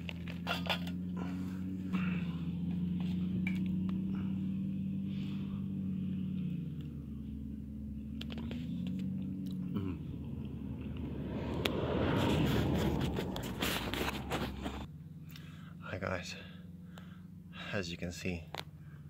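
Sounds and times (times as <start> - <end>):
vehicle engine idling hum: 0.0 - 19.0.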